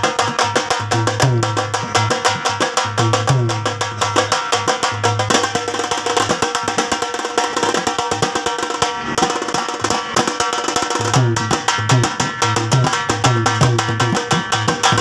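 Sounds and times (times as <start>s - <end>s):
deep bass: 0.0s - 5.6s, 11.0s - 14.5s
rapid drum strokes: 0.0s - 15.0s.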